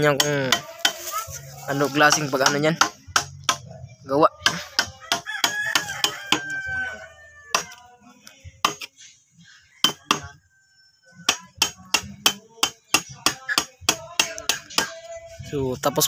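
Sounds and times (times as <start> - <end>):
hammer striking wood chisel: 2.1 - 3.6, 9.8 - 10.2, 11.3 - 14.9.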